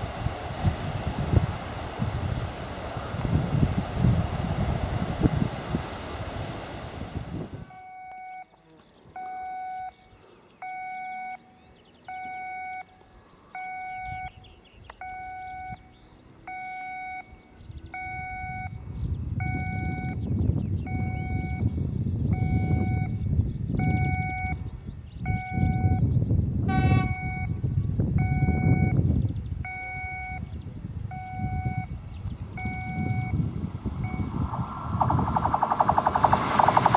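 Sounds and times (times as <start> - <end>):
level-crossing warning tone: 29.7 - 36.9
train rumbling: 32.4 - 36.9.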